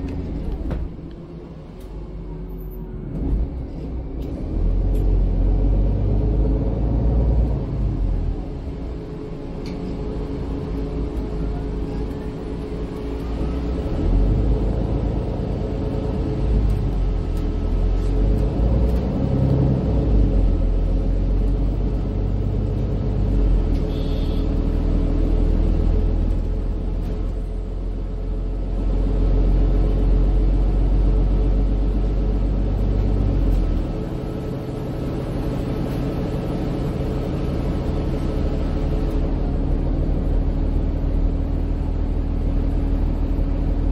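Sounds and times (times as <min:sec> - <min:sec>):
bus diesel engine: 0:00.0 - 0:43.9
road rumble: 0:00.0 - 0:43.9.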